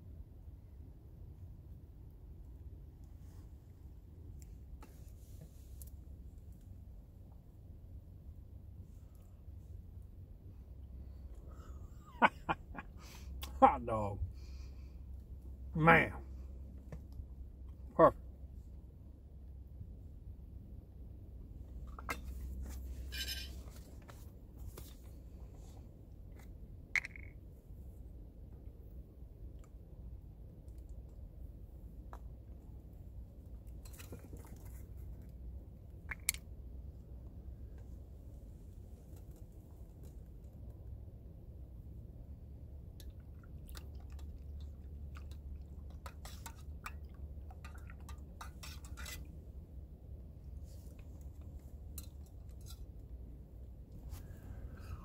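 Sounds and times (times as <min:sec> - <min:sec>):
low outdoor rumble: 0:00.0 - 0:55.0
spoon stirring in metal cup: 0:45.9 - 0:49.3.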